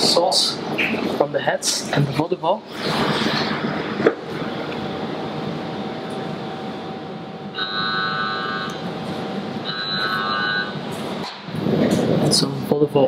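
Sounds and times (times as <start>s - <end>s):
faint constant hum: 0.0s - 13.0s
electronic alarm tone: 7.5s - 8.8s, 9.6s - 10.9s.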